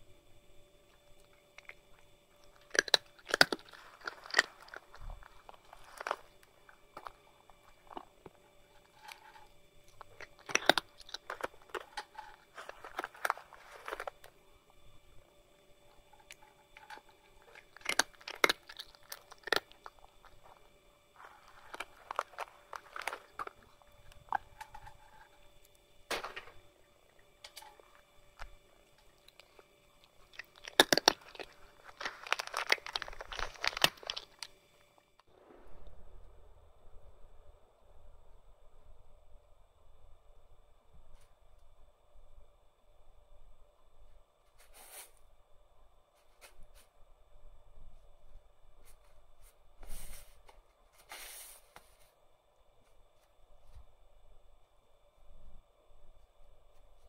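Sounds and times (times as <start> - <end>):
cat chewing and crunching food: 0.0 - 35.4, 43.5 - 45.4.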